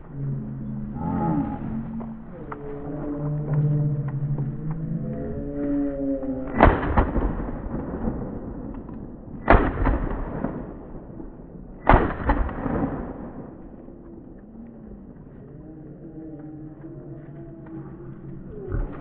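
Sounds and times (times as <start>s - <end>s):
shotgun shots with echo: 6.5s - 13.7s.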